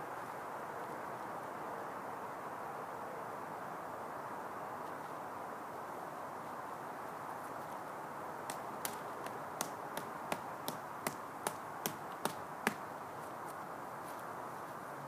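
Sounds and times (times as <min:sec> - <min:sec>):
steady outdoor hiss: 0:00.0 - 0:15.0
stake being hammered into ground: 0:08.5 - 0:12.8.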